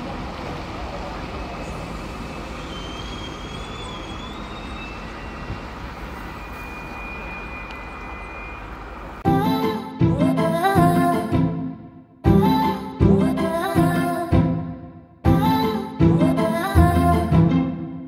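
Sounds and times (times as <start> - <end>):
train rolling past: 0.0 - 9.6.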